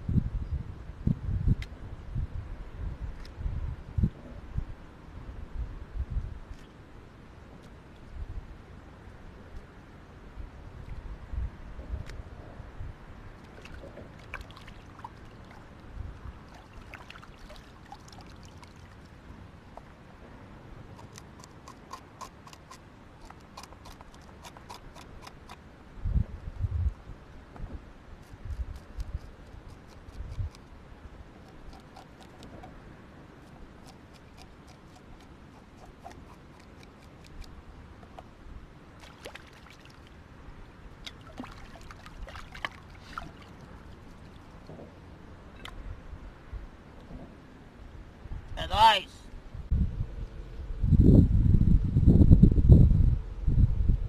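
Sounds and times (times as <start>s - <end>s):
wind rumble on microphone: 0.0s - 17.0s, 25.8s - 33.8s, 40.1s - 48.6s, 49.3s - 54.0s
hands splashing in water: 41.1s - 43.6s.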